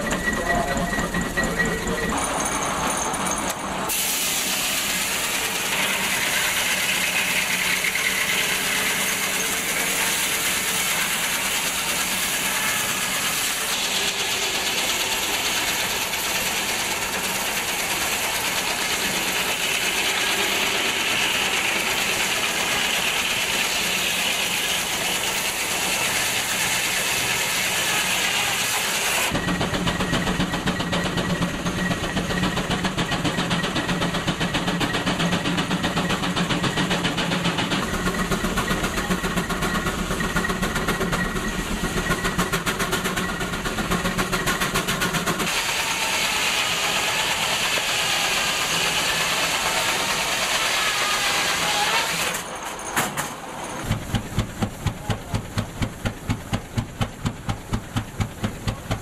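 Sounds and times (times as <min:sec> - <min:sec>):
steam engine and drive belt running: 0:00.0 - 0:59.0
saw cutting through log: 0:03.9 - 0:29.4, 0:44.2 - 0:52.6.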